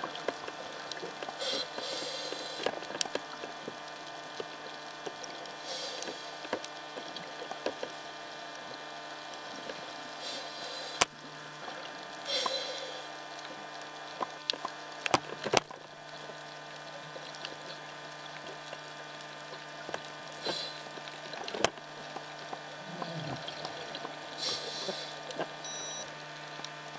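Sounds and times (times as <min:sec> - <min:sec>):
underwater bubbles rushing: 0:14.5 - 0:25.6.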